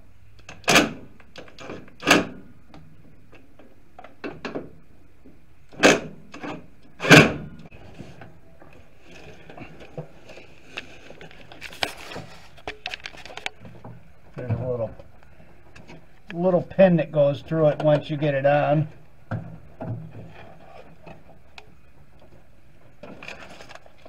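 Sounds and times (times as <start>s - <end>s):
faint clicks and handling: 7.6s - 16.4s, 20.2s - 24.0s.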